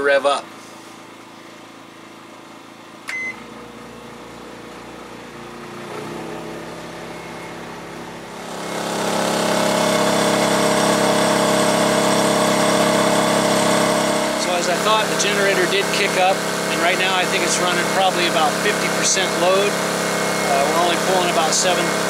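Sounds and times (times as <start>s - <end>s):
generator engine running: 0.0s - 22.0s
microwave humming: 0.4s - 22.0s
microwave keypad beep: 3.1s - 3.5s.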